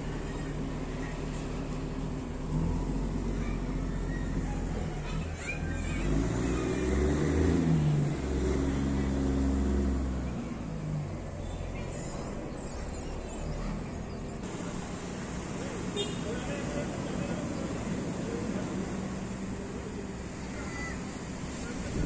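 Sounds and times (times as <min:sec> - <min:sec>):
vehicle engine running: 0:00.0 - 0:22.0.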